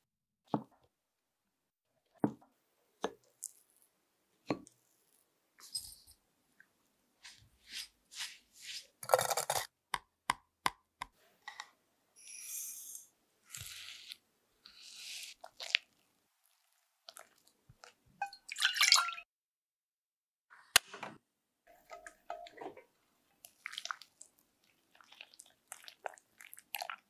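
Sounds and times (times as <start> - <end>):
crunchy squish of crumbs: 3.2 - 3.9, 13.5 - 18.0, 23.4 - 27.0.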